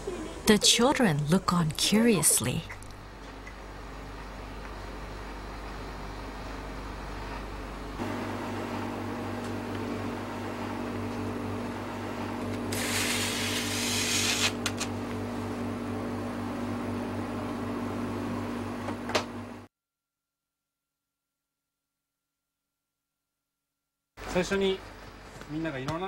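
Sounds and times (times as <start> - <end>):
steady machine hum: 0.0 - 19.7
loud hiss: 12.7 - 14.6.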